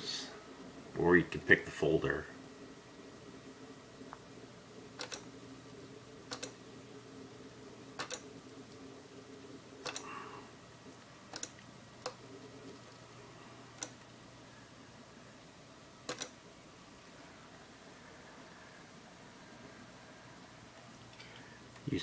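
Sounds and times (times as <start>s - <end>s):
faint computer hum: 0.0s - 22.0s
computer mouse clicks: 5.0s - 5.3s, 6.3s - 6.6s, 8.0s - 8.3s, 9.8s - 10.1s, 11.3s - 12.2s, 13.8s - 14.1s, 16.1s - 16.4s.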